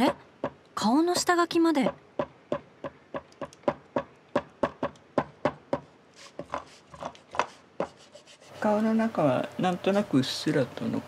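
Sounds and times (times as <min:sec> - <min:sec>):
eraser rubbing on paper: 0:06.1 - 0:08.5.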